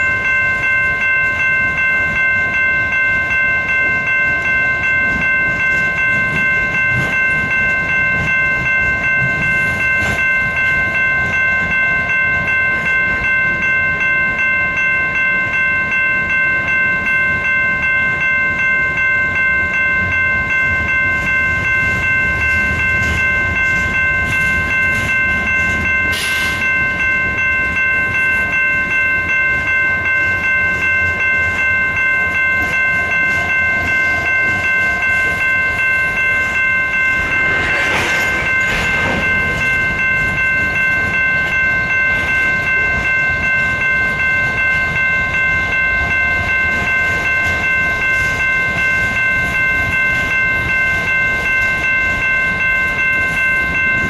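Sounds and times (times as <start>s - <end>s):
crossing bell ringing: 0.0s - 54.0s
freight train wheel rumble: 19.9s - 54.0s.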